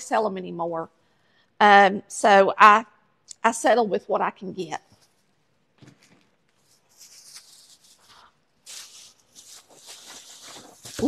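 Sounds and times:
paper bags rustling: 0:05.8 - 0:11.0.

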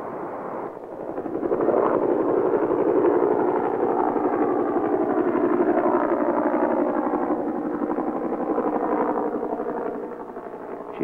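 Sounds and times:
helicopter rotor blades chopping: 0:00.1 - 0:11.0.

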